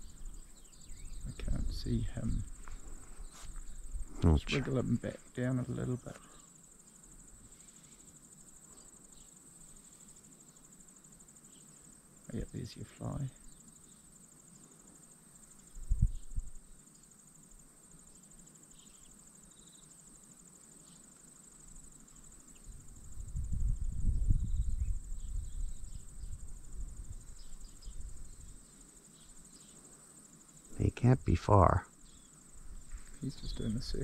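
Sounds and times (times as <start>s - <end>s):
cicadas chirring: 0.0s - 34.0s
wind buffeting microphone: 15.8s - 16.6s, 22.8s - 28.3s.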